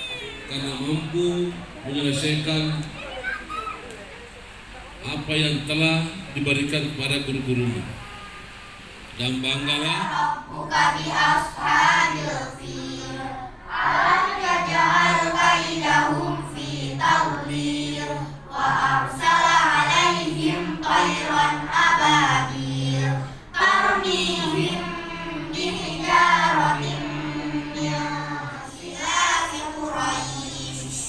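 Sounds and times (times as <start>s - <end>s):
children chanting in unison: 9.8s - 31.0s.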